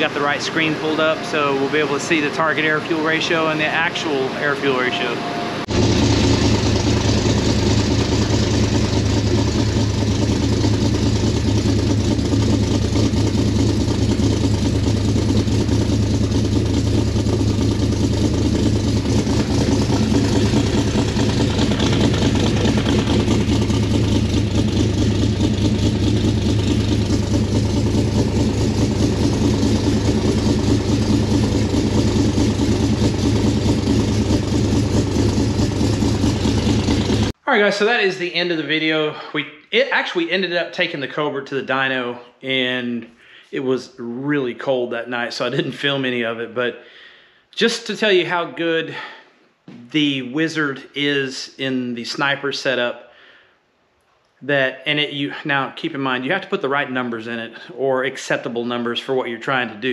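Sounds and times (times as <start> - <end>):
car engine idling: 0.0 - 37.4.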